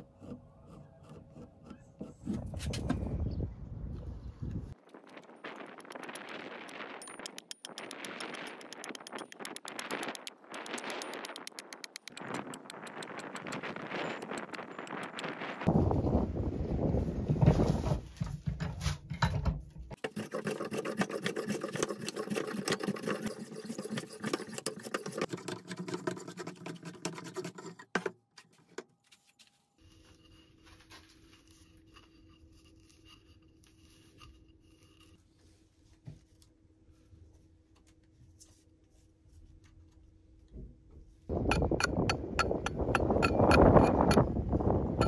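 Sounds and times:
hand plane shaving wood: 20.0s - 27.9s.

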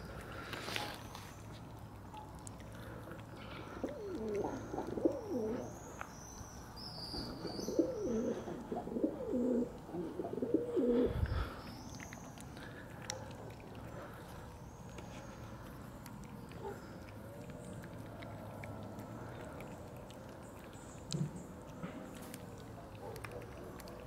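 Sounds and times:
pigeons cooing: 3.4s - 5.8s, 7.1s - 11.5s.

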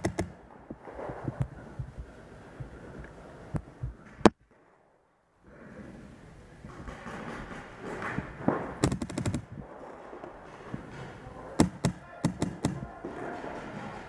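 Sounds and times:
paintball markers firing: 0.0s - 0.4s, 6.7s - 9.6s, 11.6s - 14.0s.

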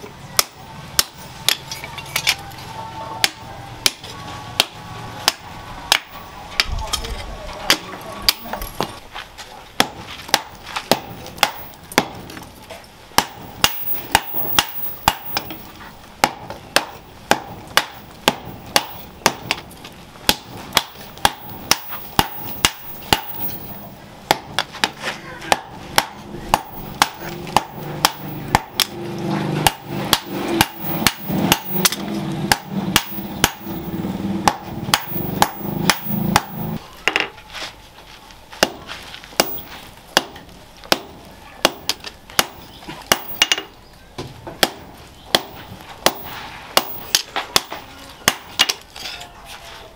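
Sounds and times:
hammer striking blade on anvil: 13.2s - 15.8s, 20.3s - 36.8s.

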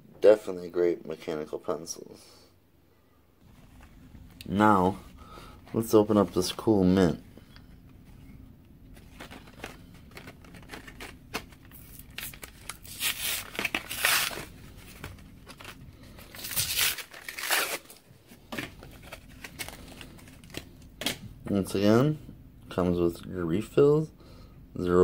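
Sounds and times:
plastic blister pack crackling: 9.0s - 18.0s
packaging ripping: 9.4s - 14.6s, 15.4s - 18.0s.

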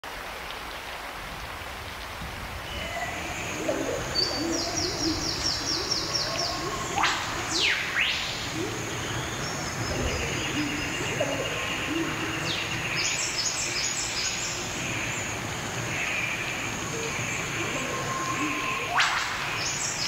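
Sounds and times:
rain hissing: 0.0s - 20.0s
low bird calls: 2.6s - 20.0s
sweeping bird whistle: 4.0s - 8.3s.

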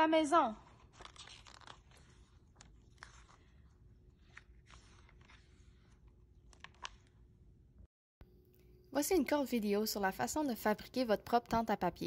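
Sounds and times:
book pages turning: 0.6s - 7.4s.

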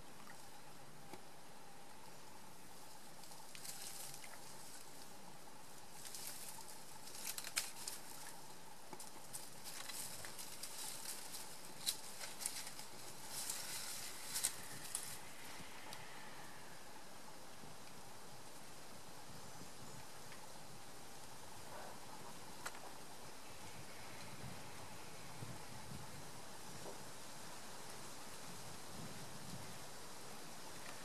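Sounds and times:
rustling in leaf litter: 2.8s - 16.6s.

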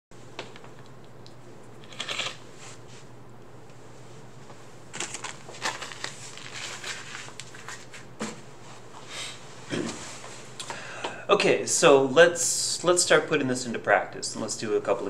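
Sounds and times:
steady low hum: 0.2s - 15.0s
rustling handling noises: 3.8s - 10.6s.

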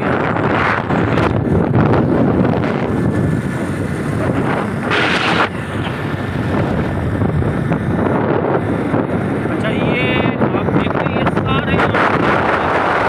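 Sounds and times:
motorcycle engine: 0.0s - 10.2s
road noise: 0.0s - 13.0s
wind rushing over microphone: 0.0s - 13.0s.

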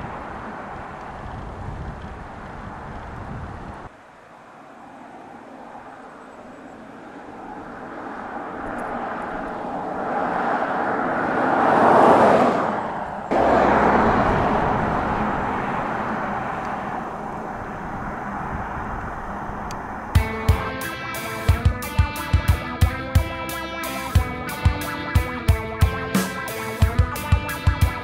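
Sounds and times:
car driving past: 4.7s - 20.2s.

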